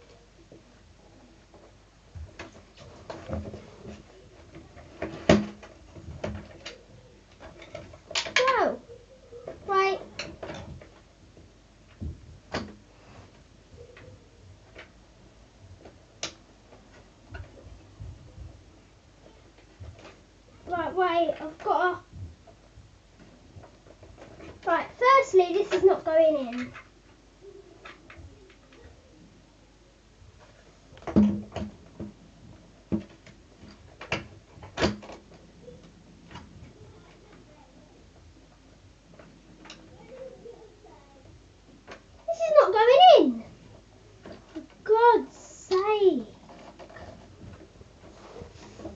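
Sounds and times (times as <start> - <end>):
handling clicks and knocks: 1.4 - 20.8, 30.4 - 40.4.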